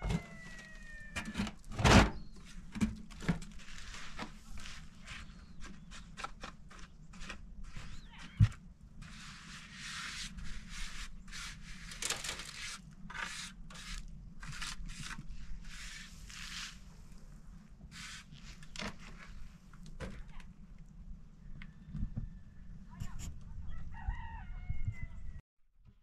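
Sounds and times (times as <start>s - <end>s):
trowel scraping mortar: 9.0s - 16.9s.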